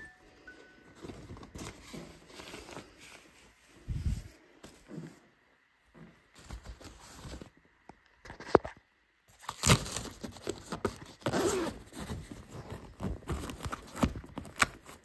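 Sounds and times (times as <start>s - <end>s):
fabric rustling: 0.6s - 5.3s
zipper scraping: 11.2s - 14.2s.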